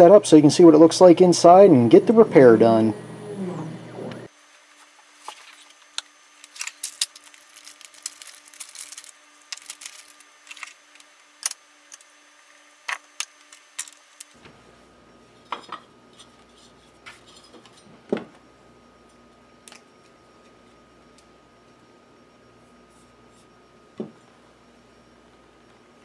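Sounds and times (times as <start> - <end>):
plastic bag crinkling: 6.4 - 11.4.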